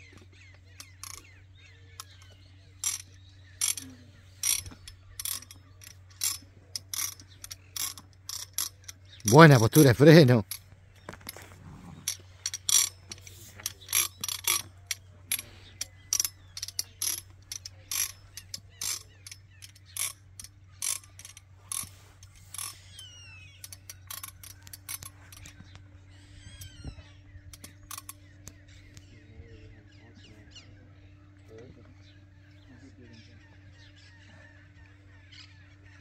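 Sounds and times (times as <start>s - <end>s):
metallic clicks of horse bit: 0.0s - 1.4s, 2.0s - 25.9s, 27.5s - 28.6s.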